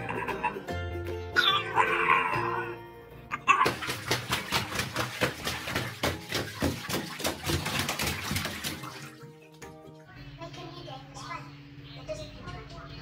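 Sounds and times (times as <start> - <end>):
dog claws clicking in bathtub: 3.6 - 9.7.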